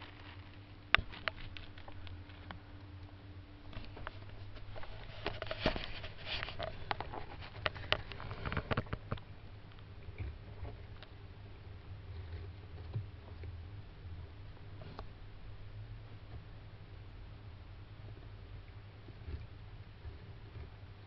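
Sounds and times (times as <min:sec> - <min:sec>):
tortoise claws scrabbling and clicking: 0:00.0 - 0:11.1.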